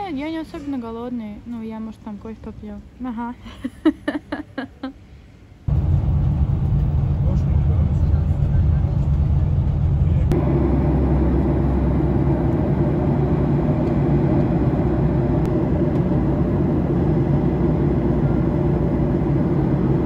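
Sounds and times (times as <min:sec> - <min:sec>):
bus running noise: 0:05.4 - 0:20.0
airliner cabin rumble: 0:05.6 - 0:20.0.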